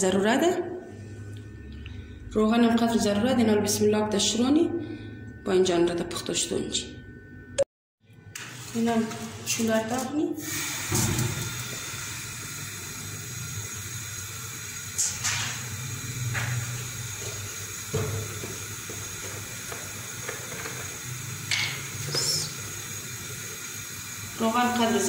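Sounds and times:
low hum: 0.0s - 10.4s
gas burner hissing: 8.4s - 25.0s.

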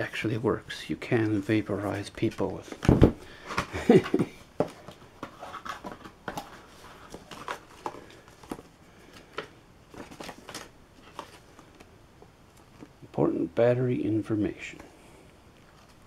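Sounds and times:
paper and cardboard rustling: 1.1s - 11.9s.

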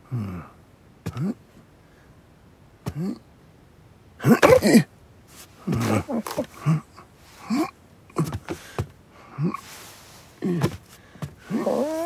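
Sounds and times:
cartoon strained grunts: 0.0s - 1.4s, 2.8s - 3.3s, 4.2s - 4.9s, 5.6s - 9.8s, 10.4s - 12.0s.

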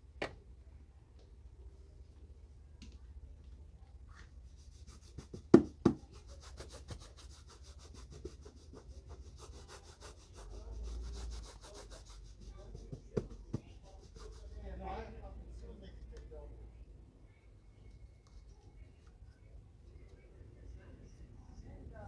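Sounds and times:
shoe being buffed: 4.8s - 14.5s.

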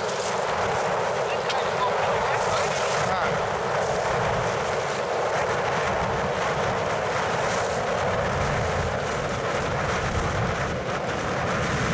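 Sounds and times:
wind noise on microphone: 0.0s - 11.9s.

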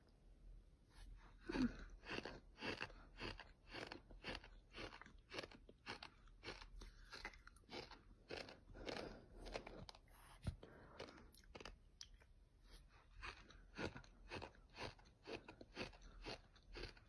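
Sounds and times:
chewing gritty sand: 1.5s - 17.0s.

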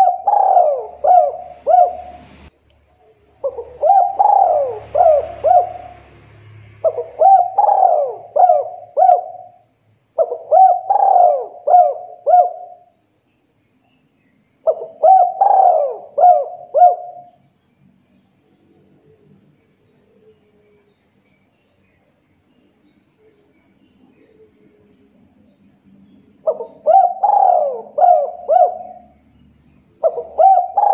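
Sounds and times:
dove cooing: 0.0s - 2.5s, 3.3s - 9.6s, 10.2s - 12.9s, 14.6s - 17.4s, 26.4s - 29.2s, 29.9s - 30.9s.

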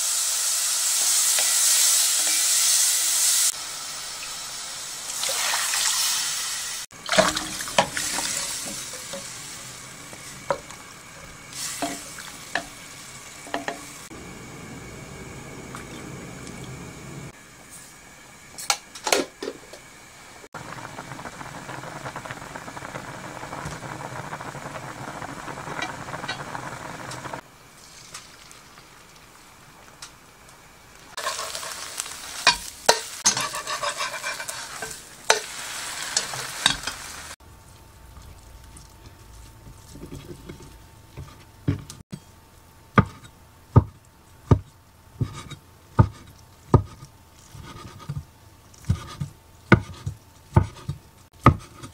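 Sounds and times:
egg sizzling in frying pan: 0.0s - 14.4s, 20.4s - 37.4s
soup simmering: 6.9s - 17.4s, 20.5s - 40.6s.

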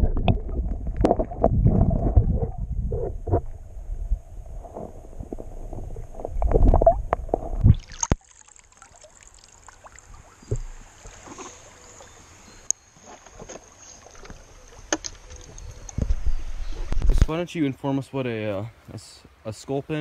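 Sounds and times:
muffled underwater rumble and knocks: 0.0s - 7.8s
faint water splashes: 7.6s - 16.0s.

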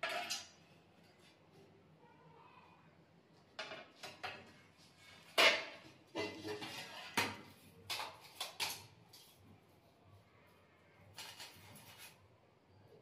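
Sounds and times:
tiles and tools clattering: 0.0s - 1.5s, 3.6s - 9.4s, 11.0s - 12.3s.

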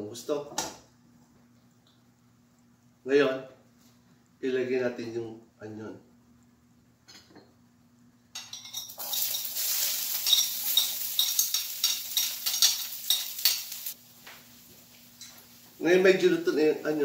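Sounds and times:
metal utensil clinking and scraping: 8.4s - 14.0s
onion sizzling in oil: 8.8s - 17.0s.

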